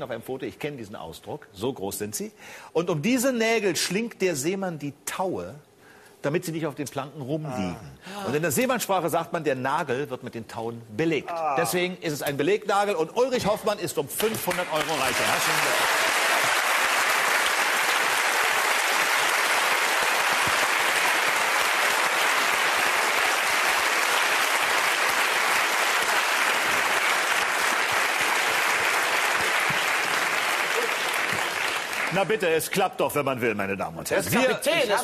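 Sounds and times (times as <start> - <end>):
audience applauding: 14.2 - 32.6.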